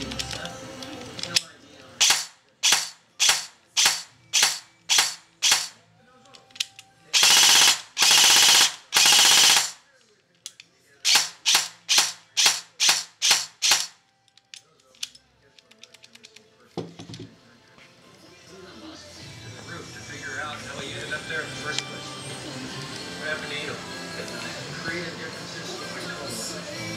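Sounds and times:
airsoft gearbox firing shots: 2.0s - 5.7s, 7.2s - 9.8s, 11.1s - 14.0s.

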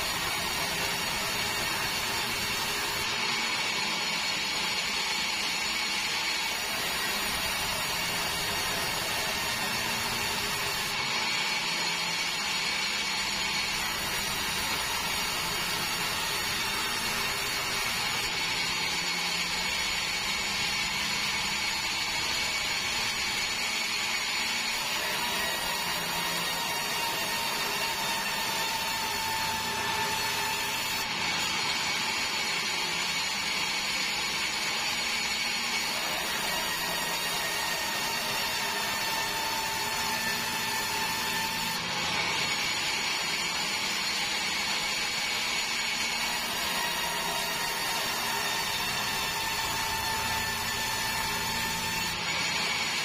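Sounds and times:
band saw sawing wood: 0.0s - 53.0s.

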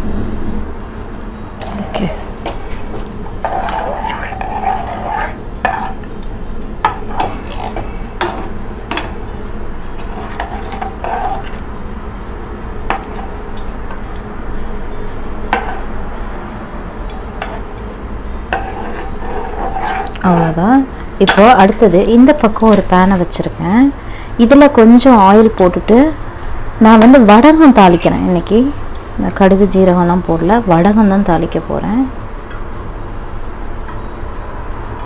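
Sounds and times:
steady low hum: 0.0s - 35.0s
spoon scraping metal pot: 1.6s - 6.2s, 6.8s - 9.1s, 9.8s - 11.7s, 18.5s - 22.9s.

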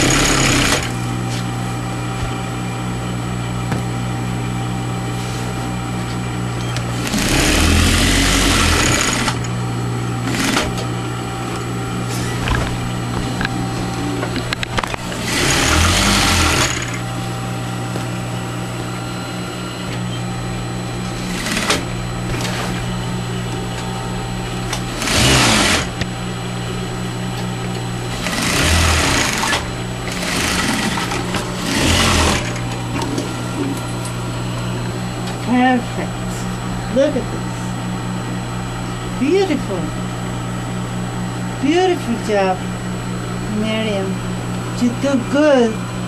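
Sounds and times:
sewing machine stitching: 0.0s - 1.0s, 6.8s - 9.5s, 10.2s - 10.8s, 15.1s - 17.0s, 21.2s - 22.7s, 24.7s - 26.0s, 28.1s - 33.2s
steady low hum: 0.0s - 46.0s.

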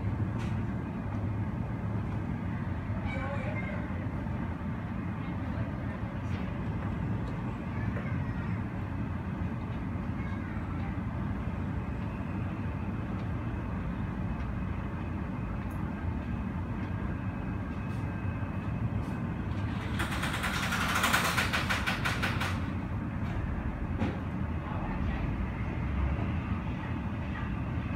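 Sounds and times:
aircraft engines rumbling: 0.0s - 27.9s
ground vehicles: 0.0s - 27.9s
harsh pulsing rattle: 19.7s - 22.7s.

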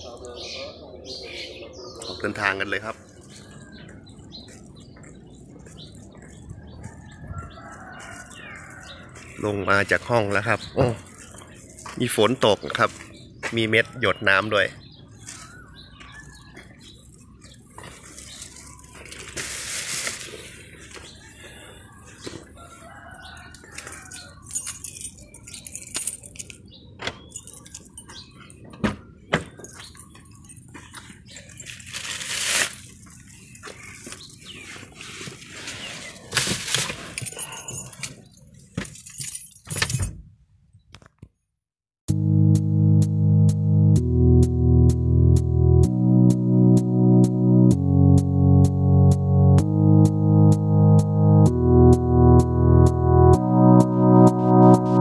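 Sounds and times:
birds chirping: 0.0s - 19.4s, 20.2s - 31.9s, 33.0s - 39.3s
keys jangling: 23.0s - 28.7s, 29.5s - 32.0s, 37.0s - 40.2s.

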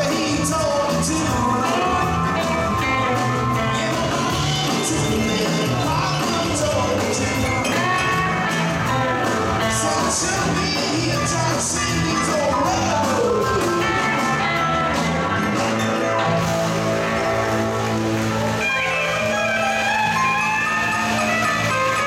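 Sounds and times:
drums and cymbals: 0.0s - 22.0s
electric guitars: 0.0s - 22.0s
guitar notes sliding downward: 12.1s - 22.0s.

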